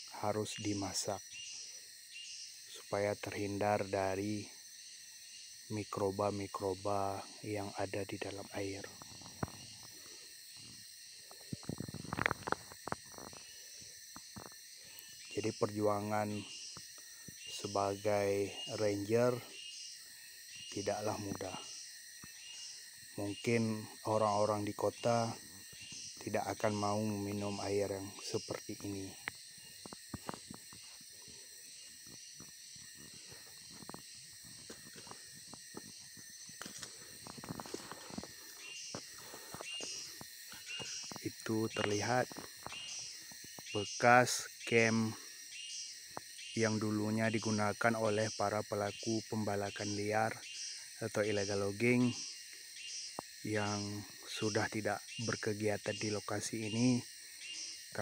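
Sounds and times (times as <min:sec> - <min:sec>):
high-pitched insect chorus: 0:00.0 - 0:58.0
steps on forest floor: 0:28.7 - 0:43.7.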